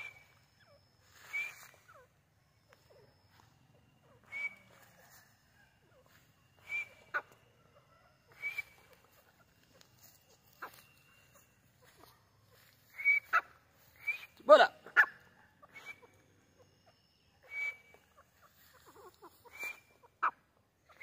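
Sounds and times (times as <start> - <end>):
bird whistled call: 0.0 - 2.1, 4.1 - 5.2, 6.5 - 7.4, 8.3 - 9.3, 12.8 - 14.4, 15.0 - 18.3, 19.2 - 20.1.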